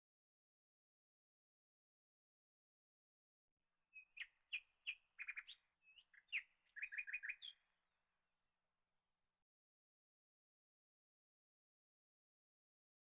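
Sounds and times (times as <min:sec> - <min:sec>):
small bird chirping: 0:03.9 - 0:07.6.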